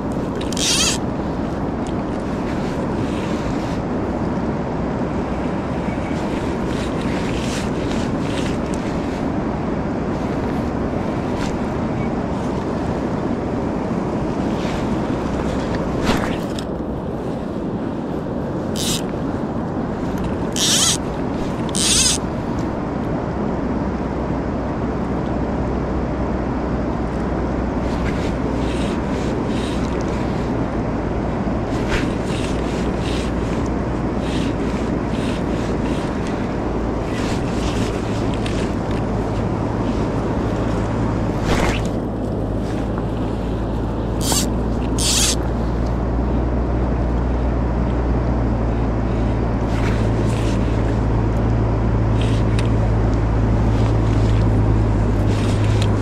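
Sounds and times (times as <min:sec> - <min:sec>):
fast-flowing river: 0:00.0 - 0:24.0, 0:27.2 - 0:46.4
short rustles: 0:31.5 - 0:45.7, 0:52.1 - 0:56.0.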